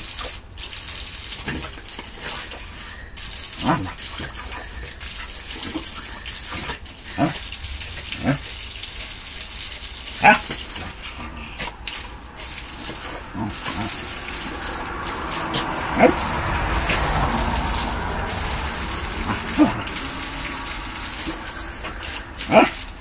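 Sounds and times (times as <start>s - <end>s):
hissing water spray: 0.0s - 23.0s
dog barking: 3.6s - 4.0s, 7.2s - 7.4s, 10.2s - 10.6s, 15.6s - 16.4s, 22.4s - 22.8s.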